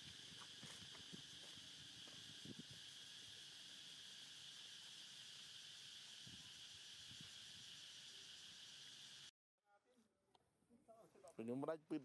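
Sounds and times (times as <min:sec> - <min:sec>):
high-pitched insect chorus: 0:00.0 - 0:09.3.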